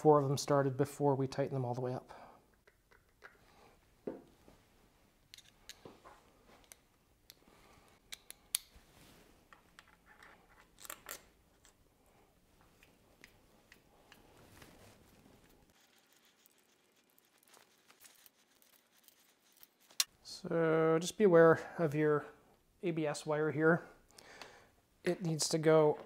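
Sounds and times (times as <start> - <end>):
light clicks of tools and bolts: 5.3 - 8.7.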